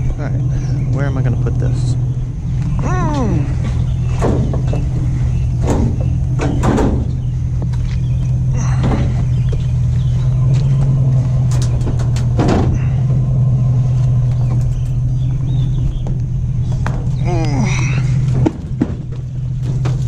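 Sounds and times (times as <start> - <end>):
road rumble: 0.0 - 20.0
truck engine droning: 0.0 - 20.0
knocks and rattles: 1.0 - 13.5, 14.1 - 20.0.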